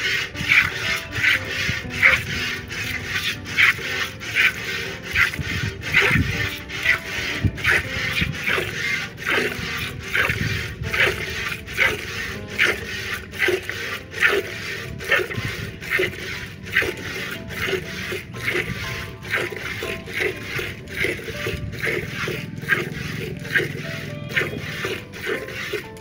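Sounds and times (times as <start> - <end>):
milk squirting into metal bucket: 0.0 - 26.0.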